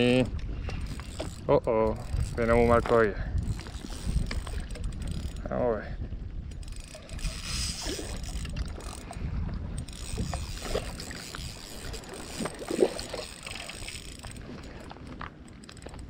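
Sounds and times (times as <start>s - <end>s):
wind buffeting microphone: 0.0s - 16.0s
water splashing against rocks: 10.1s - 15.4s.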